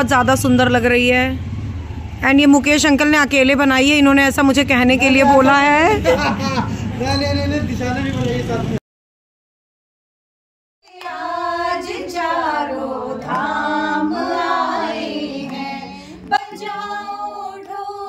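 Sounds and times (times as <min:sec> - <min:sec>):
group singing devotional song: 0:10.9 - 0:18.0.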